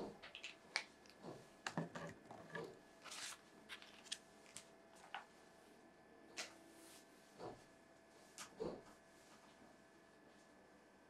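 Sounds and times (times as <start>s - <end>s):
paper rustle: 3.0s - 5.2s
book pages flipping: 3.0s - 5.3s.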